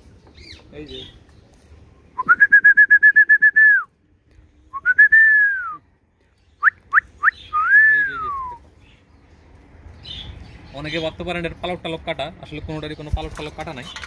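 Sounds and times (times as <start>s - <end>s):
person whistling: 2.2s - 3.9s, 4.7s - 5.8s, 6.6s - 8.6s.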